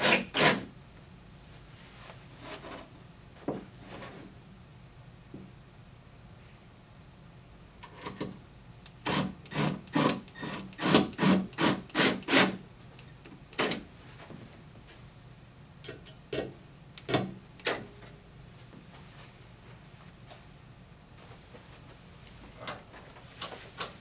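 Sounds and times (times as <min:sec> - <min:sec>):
cordless drill driving screws: 0:09.0 - 0:12.5.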